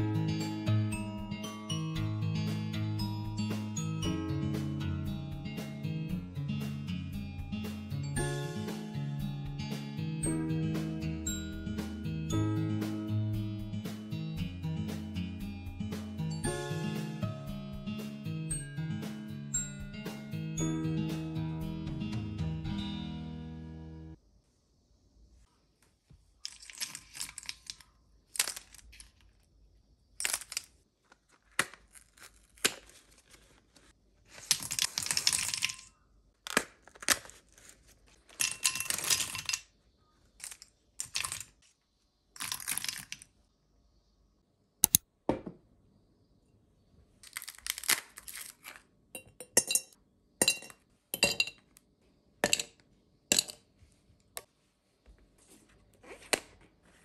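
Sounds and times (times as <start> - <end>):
ice cubes clinking into glass: 26.5 - 27.8, 34.5 - 36.0, 38.3 - 39.7, 40.4 - 41.5, 42.4 - 43.2, 47.2 - 51.6, 52.4 - 53.6
metal capsules clattering into glass bowl: 34.6 - 35.9, 38.3 - 39.7, 49.2 - 51.6, 52.4 - 52.7, 53.3 - 53.6.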